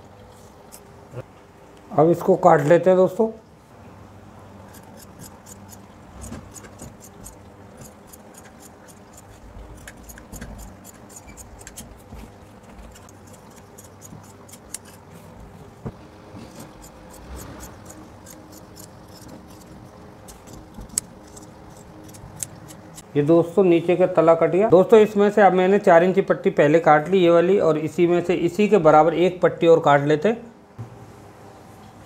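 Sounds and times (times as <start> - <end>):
shears snipping thick fabric: 4.7 - 15.3, 16.4 - 23.0.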